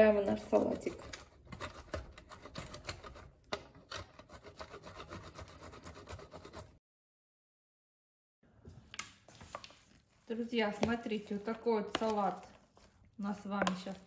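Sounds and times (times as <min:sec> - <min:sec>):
cheese scraping on metal grater: 0:00.3 - 0:06.8.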